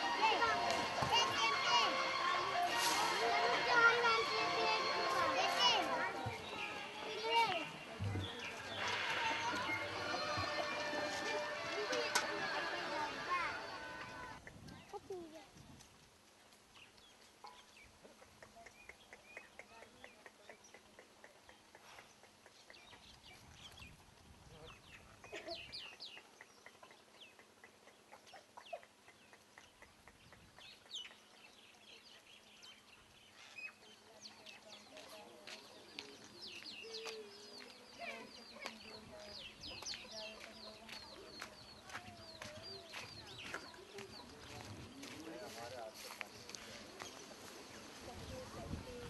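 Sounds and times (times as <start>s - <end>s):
small birds chirping: 4.7s - 10.9s, 13.6s - 49.0s
chickens clucking: 8.1s - 15.1s, 18.0s - 23.3s, 25.0s - 31.5s.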